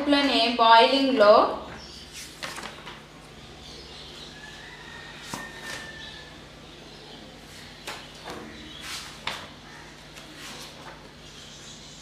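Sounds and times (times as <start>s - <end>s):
book pages rustling: 2.1s - 3.0s, 8.8s - 11.2s.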